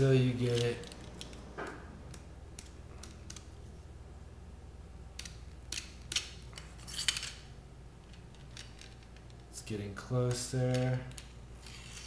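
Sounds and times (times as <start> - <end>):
metal tubes scraping and clicking: 0.4 - 1.4, 5.2 - 7.4, 10.3 - 12.0.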